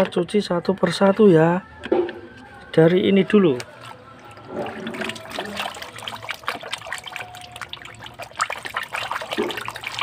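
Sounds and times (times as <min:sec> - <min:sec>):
water splashing in plastic tub: 0:03.6 - 0:10.0.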